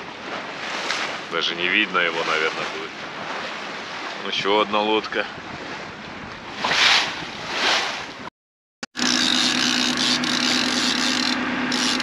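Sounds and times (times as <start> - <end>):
boat engine droning: 0.0 - 4.2, 8.9 - 12.0
sea noise: 0.0 - 8.3, 8.9 - 12.0
wind rushing over microphone: 0.0 - 8.3.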